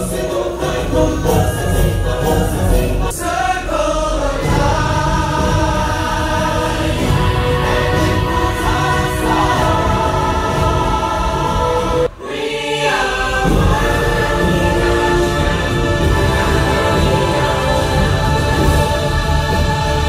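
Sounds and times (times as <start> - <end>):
choir singing with instruments: 0.0 - 20.0.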